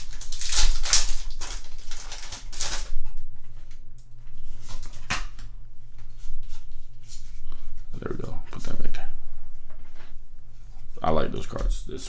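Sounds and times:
trading cards rustling: 0:00.0 - 0:02.9
foil wrapper crinkling: 0:00.0 - 0:03.8.

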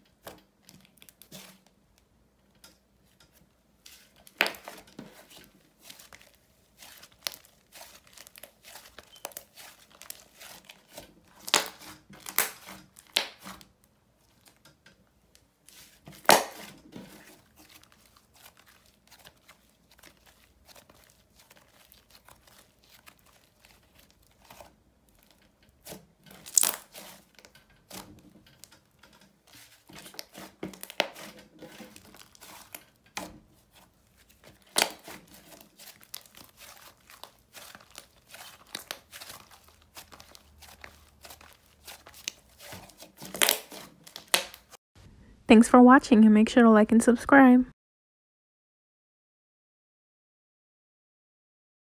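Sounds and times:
slime squished by hand: 0:03.9 - 0:13.7, 0:15.6 - 0:28.8, 0:29.4 - 0:44.8.

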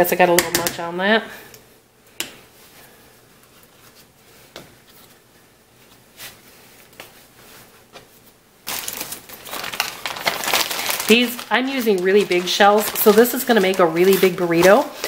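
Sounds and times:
tortilla rustling: 0:02.4 - 0:15.0
plastic bag crinkling: 0:08.6 - 0:15.0.

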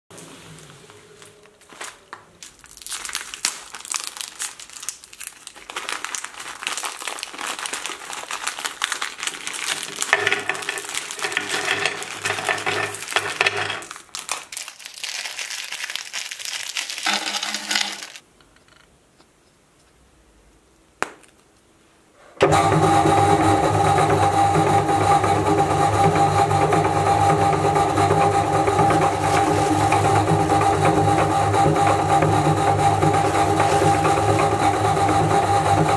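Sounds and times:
plastic wrappers crinkling: 0:00.6 - 0:18.2, 0:29.2 - 0:30.3, 0:33.1 - 0:34.3
biscuits clattering onto plate: 0:09.8 - 0:14.8.

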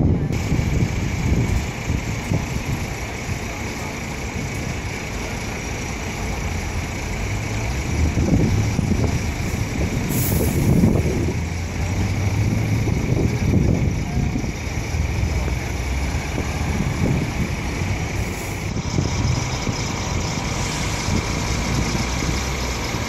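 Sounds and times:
heavy road traffic: 0:00.0 - 0:23.0
truck engine rumble: 0:00.0 - 0:23.0
short hiss: 0:10.1 - 0:10.8.

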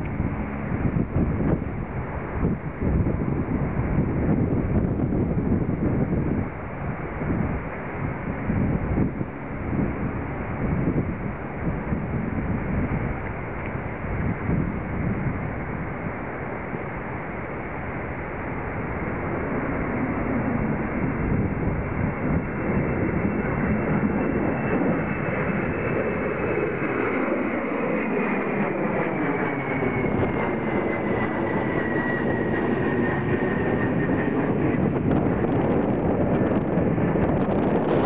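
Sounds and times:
jet engine roar overhead: 0:00.0 - 0:38.0
wind buffeting microphone: 0:00.0 - 0:38.0.

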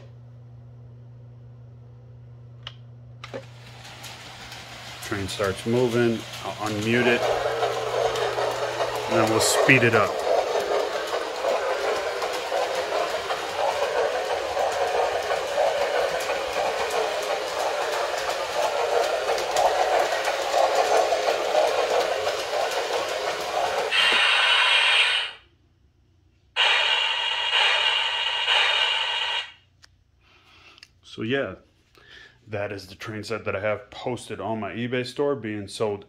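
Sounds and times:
wheels clicking: 0:03.2 - 0:24.2
toy train motor drone: 0:03.2 - 0:25.4, 0:26.6 - 0:29.6.

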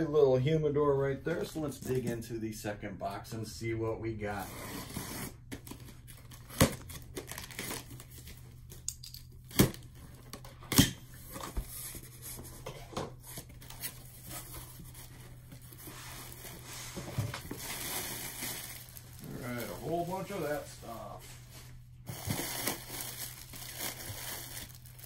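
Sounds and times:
packing tape tearing: 0:04.5 - 0:08.3, 0:22.1 - 0:25.0
plastic air pillows crinkling: 0:14.1 - 0:21.2, 0:22.1 - 0:25.0.

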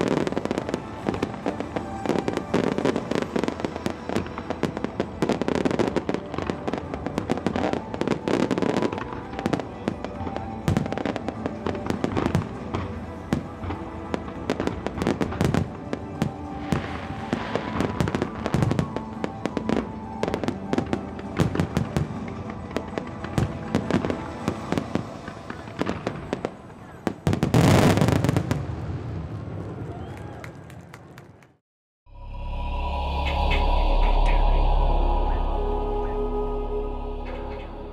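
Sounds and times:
music playing: 0:00.0 - 0:26.4, 0:32.1 - 0:37.9
fireworks bursting: 0:00.0 - 0:29.2
fireworks crackling: 0:00.0 - 0:29.6.

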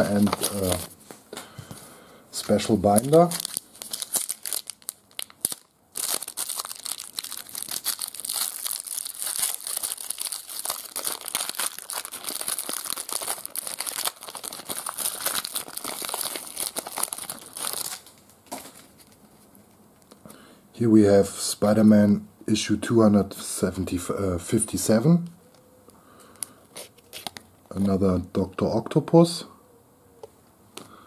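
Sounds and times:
foil wrapper crinkling and tearing: 0:00.0 - 0:00.9, 0:02.4 - 0:19.2, 0:26.8 - 0:27.5.

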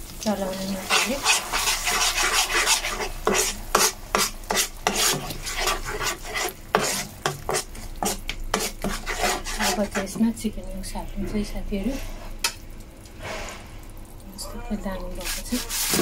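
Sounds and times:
metal spoon scraping a pan: 0:00.8 - 0:10.2, 0:15.2 - 0:16.0.

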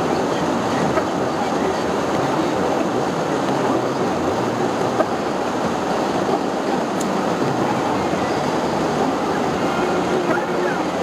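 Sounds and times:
car interior road noise: 0:00.0 - 0:11.0.

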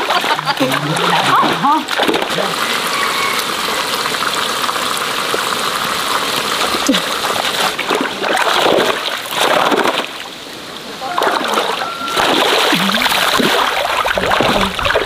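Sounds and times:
net splashing through pond water: 0:00.0 - 0:15.0.

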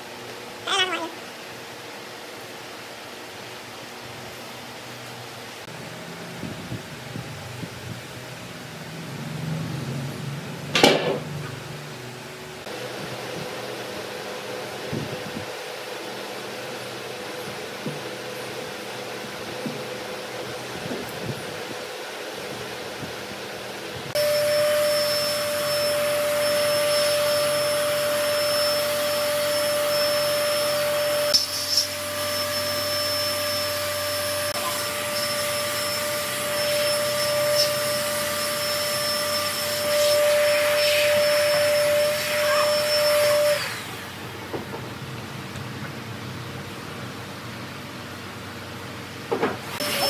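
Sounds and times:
electric motor whine: 0:24.1 - 0:44.2.

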